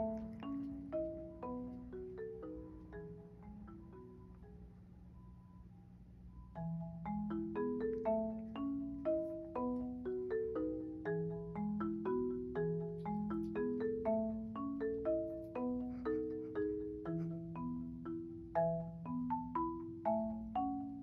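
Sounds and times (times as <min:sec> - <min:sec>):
light melody of struck notes: 0:00.0 - 0:05.4.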